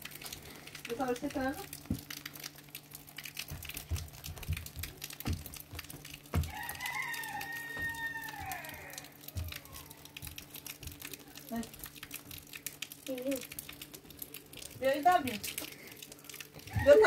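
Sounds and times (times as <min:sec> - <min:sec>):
soft low thumps: 0:03.4 - 0:06.5
rooster crowing: 0:06.4 - 0:10.3, 0:16.6 - 0:17.0.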